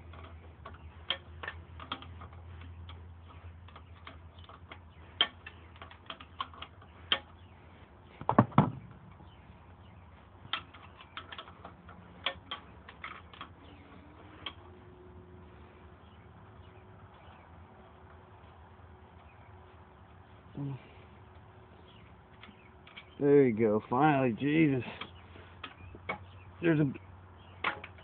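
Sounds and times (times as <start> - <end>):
metal clatter of knocks: 0.0 - 7.5, 8.1 - 9.4, 10.4 - 14.8, 27.4 - 28.0.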